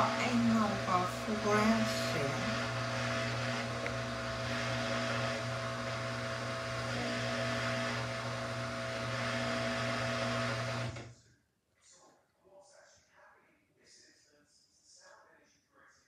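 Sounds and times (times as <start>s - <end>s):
washing machine running: 0.0s - 11.1s.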